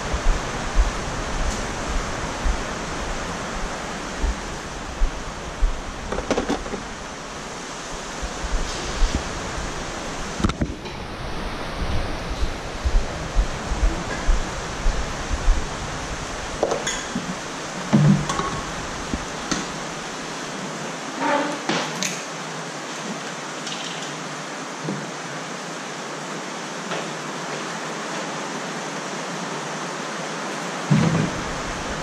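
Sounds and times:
low thumps: 0:00.0 - 0:07.1, 0:11.8 - 0:19.3
heavy rain: 0:00.0 - 0:32.0.

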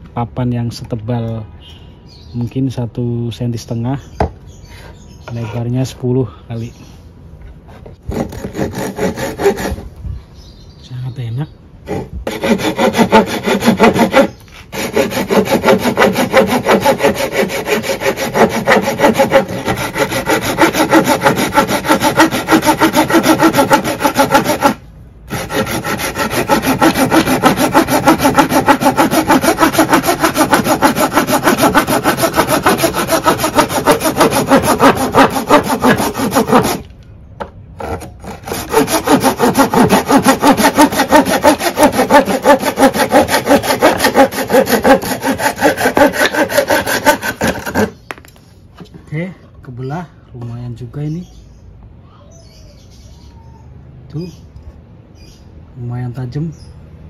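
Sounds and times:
hand saw cutting wood: 0:07.7 - 0:09.9, 0:11.9 - 0:36.9, 0:37.8 - 0:48.0.

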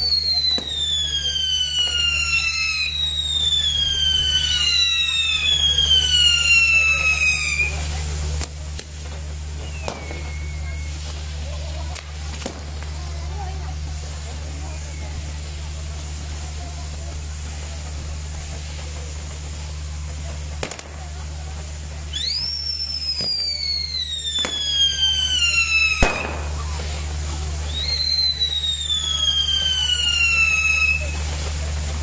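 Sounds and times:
falling firework whistle: 0:00.0 - 0:32.0
fire wheels hissing: 0:00.0 - 0:32.0
firework cracks: 0:00.0 - 0:32.0
loud firework bang: 0:09.6 - 0:11.2, 0:11.8 - 0:12.7, 0:20.6 - 0:21.1, 0:24.4 - 0:27.0.

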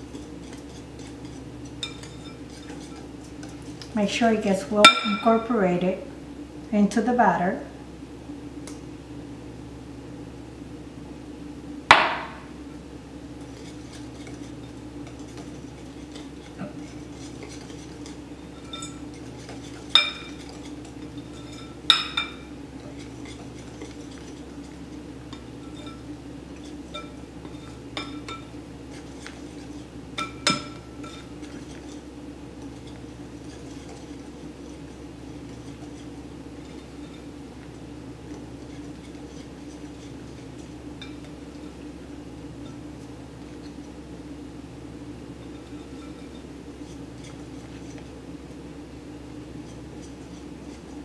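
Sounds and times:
utensils clinking on glass bowl: 0:04.8 - 0:05.4, 0:16.1 - 0:24.3, 0:25.3 - 0:28.6.

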